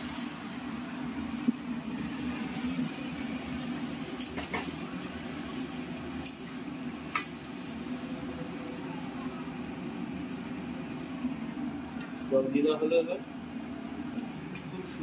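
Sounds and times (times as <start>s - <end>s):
low kitchen hum: 0.0s - 15.0s.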